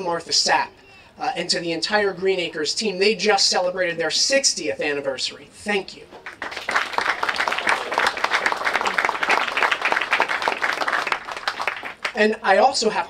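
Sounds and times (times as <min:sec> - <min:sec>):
audience applauding: 0:06.2 - 0:12.2.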